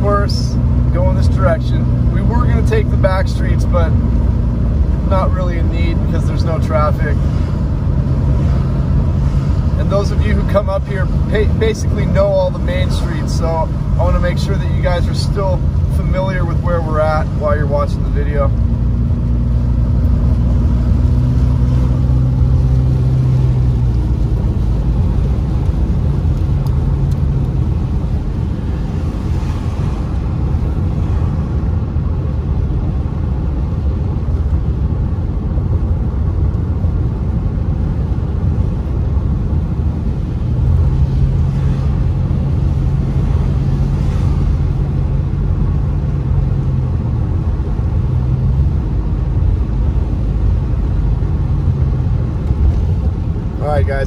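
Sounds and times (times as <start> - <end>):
car engine humming: 0.0 - 54.0
tyre rumble on wet road: 19.0 - 32.8.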